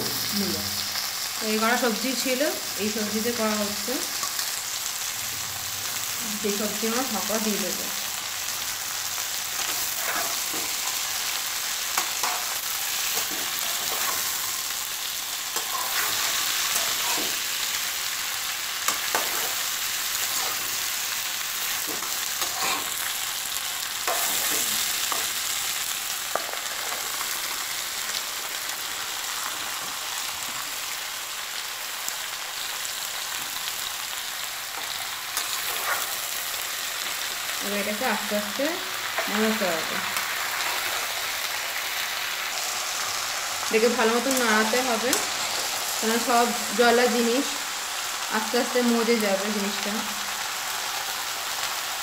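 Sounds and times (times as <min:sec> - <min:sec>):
vegetables sizzling in hot oil: 0:00.0 - 0:52.0
metal spoon scraping a pan: 0:09.5 - 0:14.7, 0:15.5 - 0:17.6, 0:18.9 - 0:21.0, 0:21.7 - 0:23.2, 0:24.0 - 0:25.6, 0:34.8 - 0:36.4.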